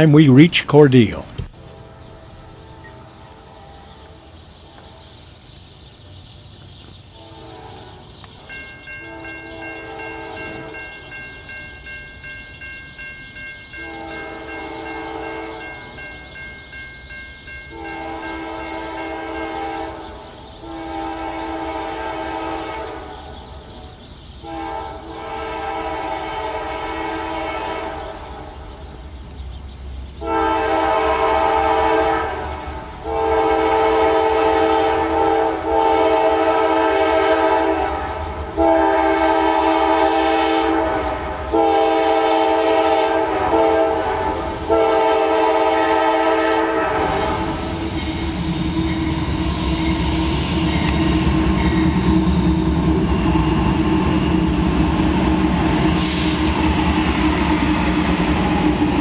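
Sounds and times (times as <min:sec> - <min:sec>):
train rumble: 0:00.0 - 0:59.0
locomotive air horn blasts: 0:01.6 - 0:05.0, 0:07.2 - 0:08.0, 0:09.0 - 0:10.8, 0:13.8 - 0:15.7, 0:17.7 - 0:23.3, 0:24.4 - 0:28.5, 0:30.2 - 0:53.1.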